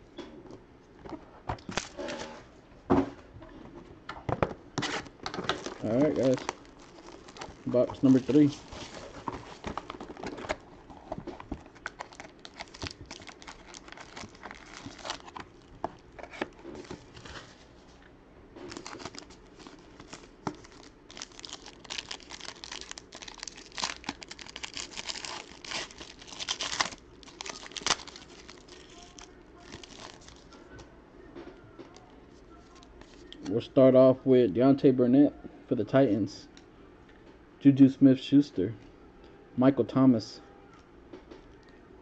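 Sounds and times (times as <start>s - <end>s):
plastic wrapping crinkling and tearing: 4.8s - 17.6s, 18.7s - 30.6s.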